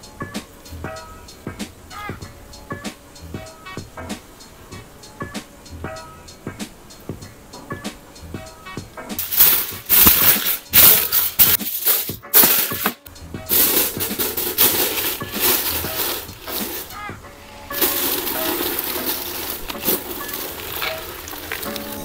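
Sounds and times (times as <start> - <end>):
background music: 0.0 - 22.0
aluminium foil crinkling: 9.2 - 22.0.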